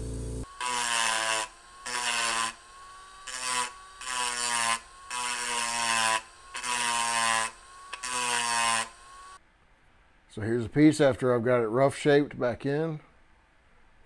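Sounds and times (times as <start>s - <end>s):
rotary tool grinding metal: 0.4s - 9.4s.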